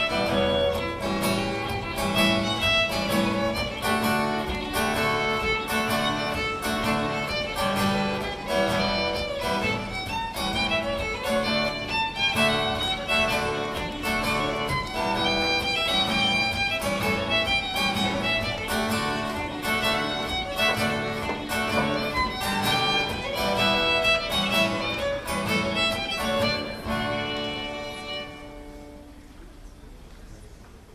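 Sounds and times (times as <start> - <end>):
fiddle playing a jig: 0.0 - 29.4
guitar accompaniment: 0.0 - 29.9.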